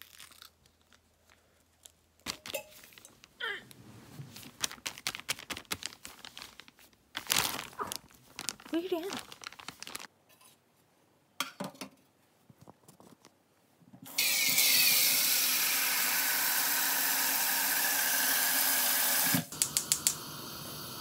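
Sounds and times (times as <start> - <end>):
gas burner hissing: 14.1 - 21.0
gas stove igniter clicking: 19.3 - 20.3.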